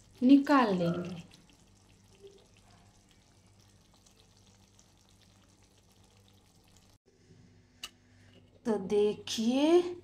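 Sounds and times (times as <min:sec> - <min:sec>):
curry sizzling and crackling: 0:00.0 - 0:07.0.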